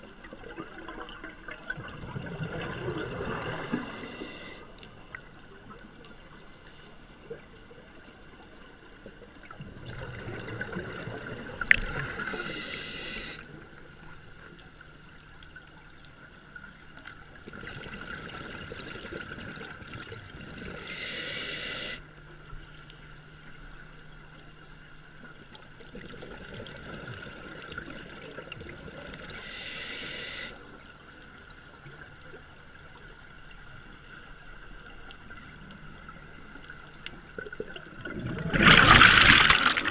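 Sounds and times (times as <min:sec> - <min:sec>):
bubbling: 0:00.0 - 0:04.3, 0:37.4 - 0:39.9
diver breathing through regulator: 0:03.4 - 0:04.7, 0:12.2 - 0:13.4, 0:20.8 - 0:22.0, 0:29.3 - 0:30.6
short bright hiss: 0:12.3 - 0:13.4.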